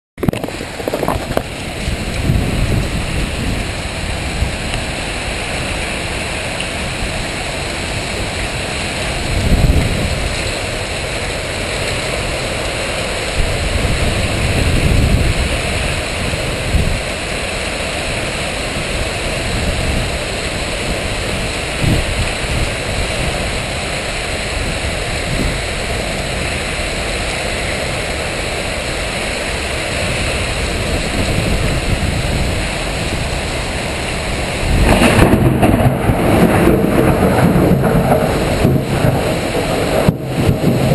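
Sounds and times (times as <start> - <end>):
low rumbles: 0.2 - 5.0
heavy rain pouring: 0.2 - 40.9.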